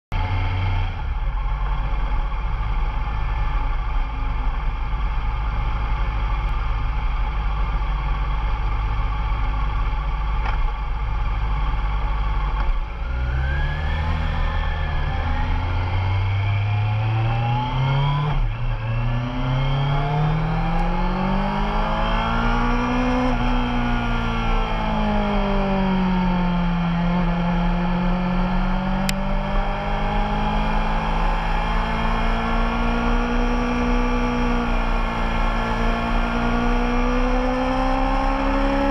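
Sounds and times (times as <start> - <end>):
motorcycle engine revving: 11.3 - 38.9.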